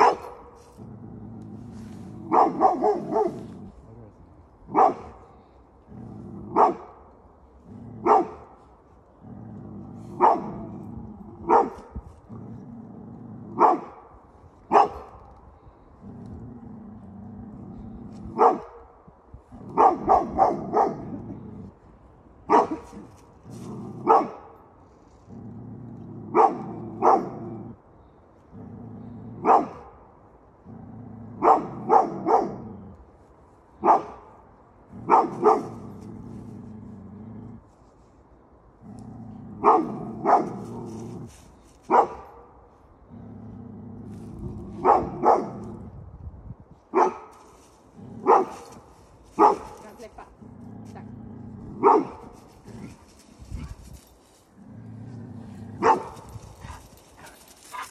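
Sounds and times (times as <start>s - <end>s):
dog barking: 0.0s - 0.5s, 2.3s - 3.5s, 4.7s - 5.2s, 6.5s - 6.9s, 8.0s - 8.4s, 10.2s - 10.6s, 11.4s - 11.8s, 13.6s - 14.0s, 14.7s - 15.1s, 18.3s - 18.8s, 19.7s - 21.1s, 22.5s - 23.0s, 24.0s - 24.5s, 26.3s - 27.4s, 29.4s - 29.8s, 31.4s - 32.6s, 33.8s - 34.2s, 35.1s - 35.8s, 39.6s - 40.6s, 41.9s - 42.4s, 44.8s - 45.6s, 46.9s - 47.3s, 48.2s - 48.6s, 49.4s - 49.8s, 51.8s - 52.2s, 55.8s - 57.9s
dog growling: 9.1s - 11.6s, 49.4s - 57.9s.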